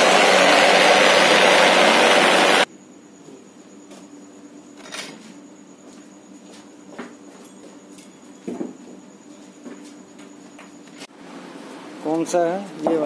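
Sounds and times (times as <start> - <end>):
vibrating table motor running: 0.0 - 2.7.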